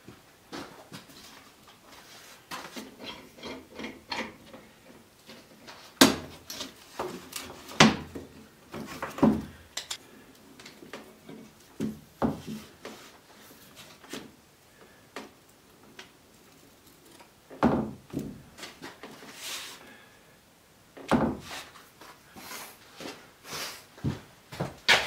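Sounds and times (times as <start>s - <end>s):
metal clamps and boards clattering: 2.7s - 4.7s.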